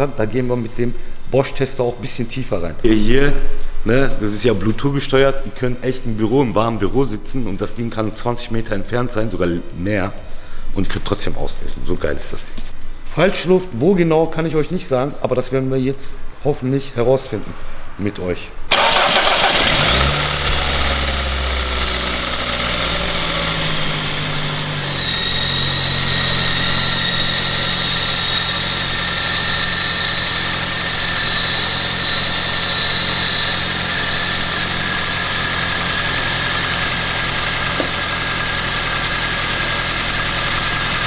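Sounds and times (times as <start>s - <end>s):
car engine idling: 18.7s - 41.0s
steady high whistle: 20.2s - 40.1s.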